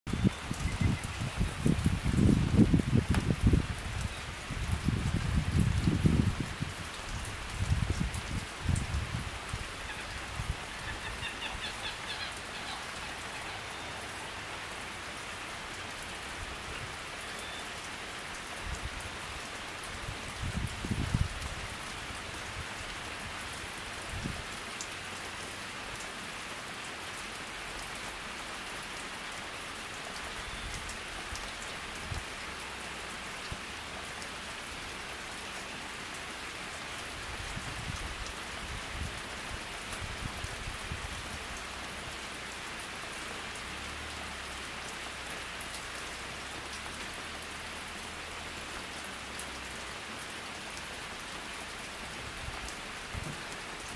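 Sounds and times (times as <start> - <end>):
rain falling on a lake: 0.1 - 53.9.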